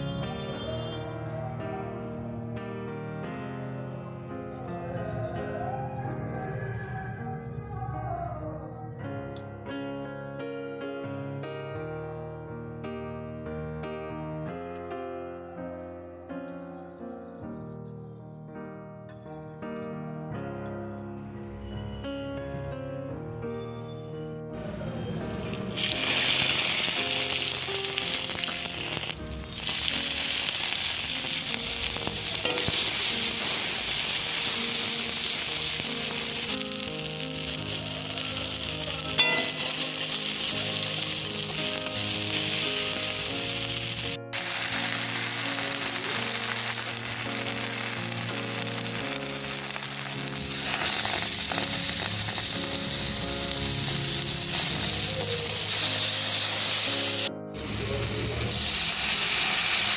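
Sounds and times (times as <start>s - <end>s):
soft background music: 14.0s - 59.9s
spices sizzling in hot oil: 25.4s - 59.9s.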